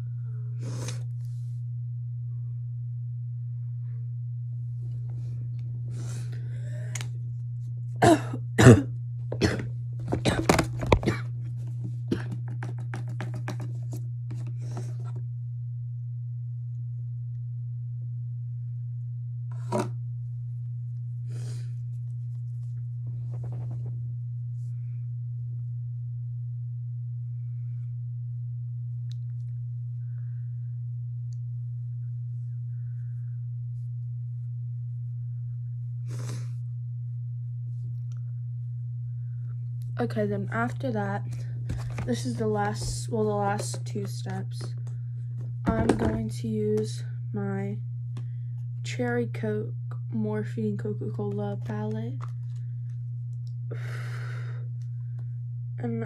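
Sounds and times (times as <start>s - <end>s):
steady low hum: 0.0s - 56.0s
person sniffing: 0.6s - 1.1s
handling rustles and clicks: 41.3s - 46.3s.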